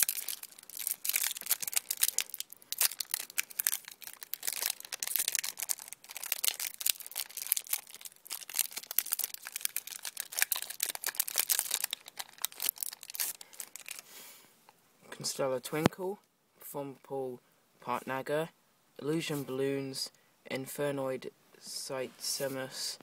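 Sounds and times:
foil wrapper tearing and crinkling: 0.0s - 14.0s.

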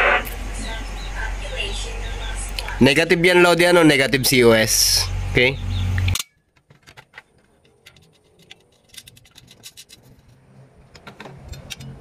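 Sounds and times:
metal rods clicking and scraping: 6.0s - 12.0s.

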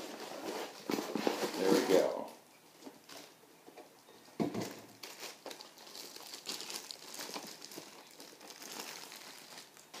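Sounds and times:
thump: 4.4s - 4.8s
plastic wrapping crinkling: 4.6s - 10.0s.

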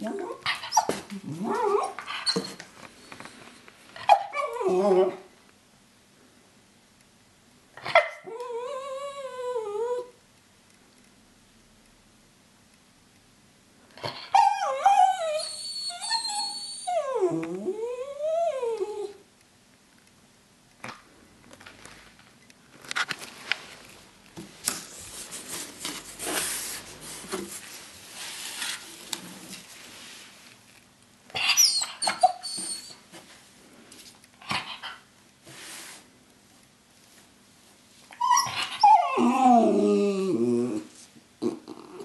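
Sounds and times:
small dog whining: 0.5s - 2.6s, 4.0s - 5.2s, 14.0s - 19.2s, 31.4s - 33.0s, 38.1s - 42.0s
paper and cardboard rustling: 24.7s - 30.6s.

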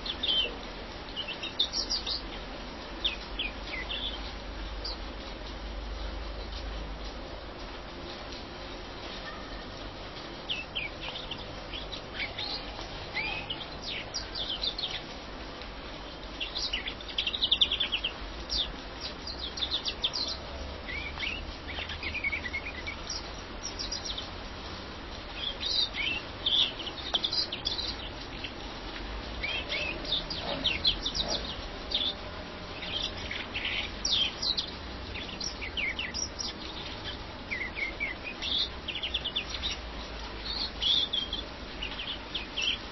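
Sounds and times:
finch twittering and trilling: 0.0s - 2.4s, 3.0s - 5.0s, 10.4s - 15.2s, 16.3s - 24.3s, 25.3s - 28.6s, 29.4s - 42.9s.

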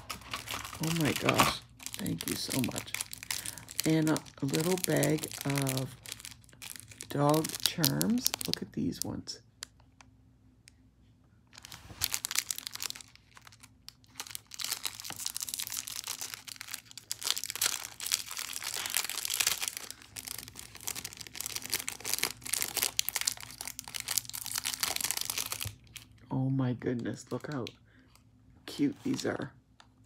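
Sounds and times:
plastic bags crinkling: 0.0s - 9.2s, 11.6s - 26.2s.

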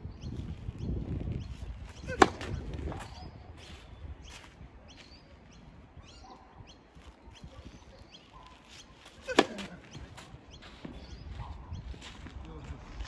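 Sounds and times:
tennis racket hitting ball: 2.1s - 2.6s, 9.2s - 9.9s.

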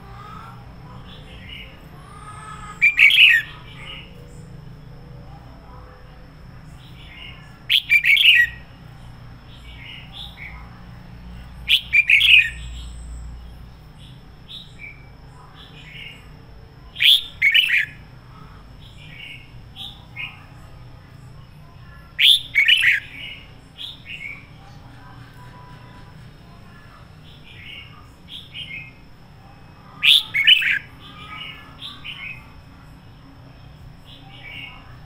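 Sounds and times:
bird singing in rapid bursts: 1.0s - 4.9s, 6.7s - 10.6s, 11.6s - 18.1s, 22.1s - 25.9s, 27.1s - 29.1s, 29.7s - 32.7s
soft bird chirps: 11.6s - 16.3s.

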